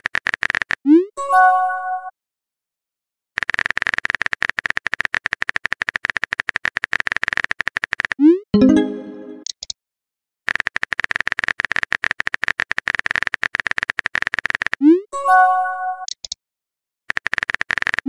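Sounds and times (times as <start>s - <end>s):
phone keyboard typing clicks: 3.4s - 8.2s, 10.5s - 14.8s, 16.0s - 16.4s, 17.1s - 18.0s
brief message chime: 8.6s - 9.4s.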